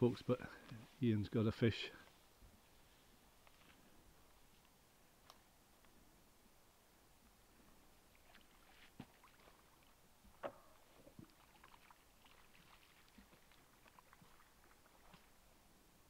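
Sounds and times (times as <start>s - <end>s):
faint clicks: 4.2s - 6.0s.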